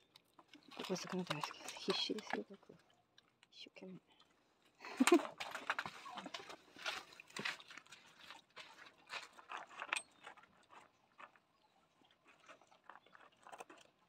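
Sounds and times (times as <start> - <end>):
dogs crunching dried fish: 5.0 - 14.0.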